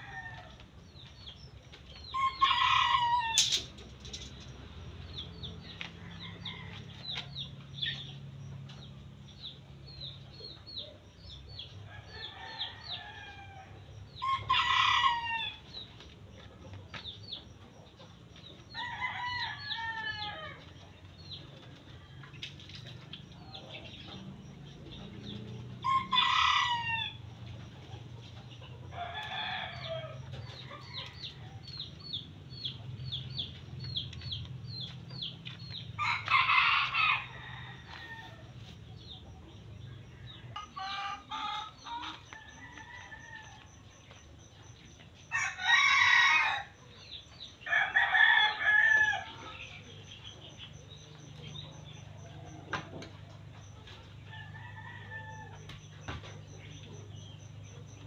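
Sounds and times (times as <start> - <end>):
roosters crowing: 0.0 - 0.8, 2.0 - 8.0, 11.7 - 16.0, 18.0 - 44.6, 45.2 - 58.0
chickens clucking: 1.0 - 11.2, 19.8 - 45.5, 48.6 - 58.0.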